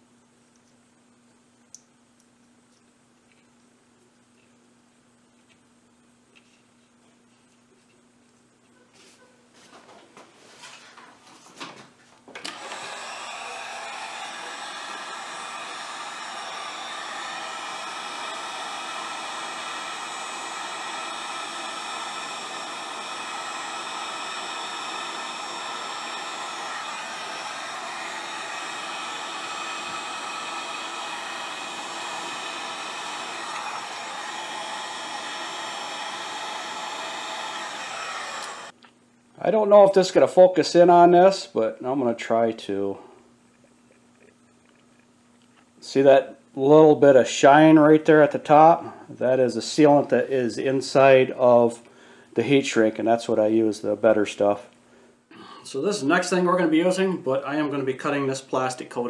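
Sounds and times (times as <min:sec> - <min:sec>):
heat gun blowing with whine: 0:12.4 - 0:38.8.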